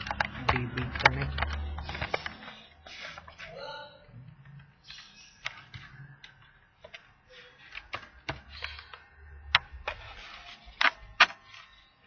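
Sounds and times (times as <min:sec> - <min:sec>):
keyboard and mouse clicks: 0:00.0 - 0:03.3.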